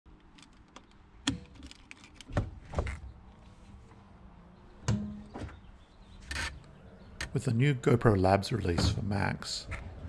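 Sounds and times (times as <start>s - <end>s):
handling noise: 0.1s - 4.1s.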